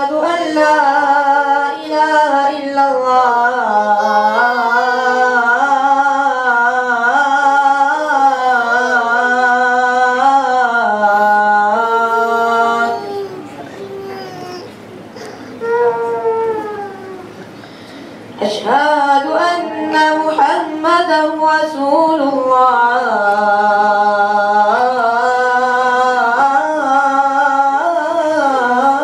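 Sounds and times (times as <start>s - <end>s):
man chanting call to prayer: 2.5s - 14.3s.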